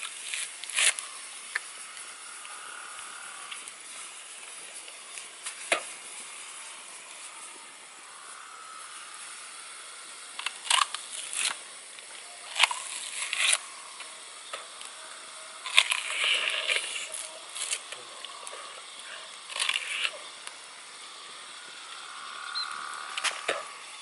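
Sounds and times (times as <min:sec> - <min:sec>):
coconut husk fibres tearing: 0:00.0 - 0:08.5, 0:09.4 - 0:15.0, 0:15.6 - 0:20.6
faint hiss: 0:00.0 - 0:24.0.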